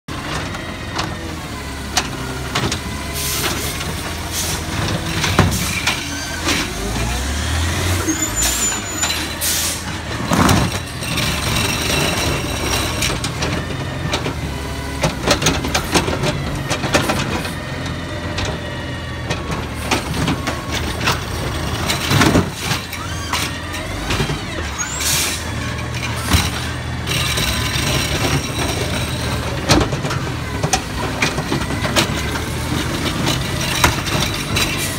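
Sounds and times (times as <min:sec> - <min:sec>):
garbage truck engine hum: 0:00.1 - 0:34.9
hydraulic arm whining: 0:00.5 - 0:34.9.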